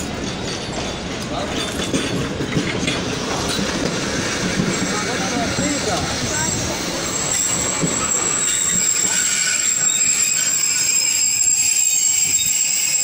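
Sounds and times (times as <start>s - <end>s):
train coaches rumbling past: 0.0s - 13.0s
wheels squealing: 4.7s - 13.0s.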